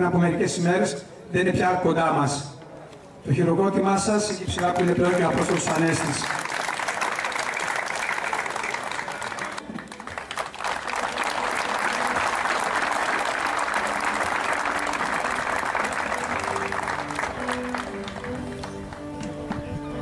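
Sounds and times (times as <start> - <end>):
stadium crowd applauding: 4.2 - 20.0.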